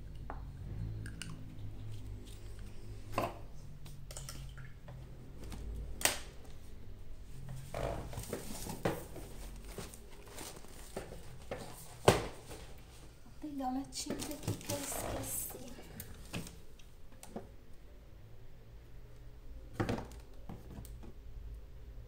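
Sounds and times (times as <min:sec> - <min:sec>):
rustling: 0:07.3 - 0:13.2, 0:13.9 - 0:16.7.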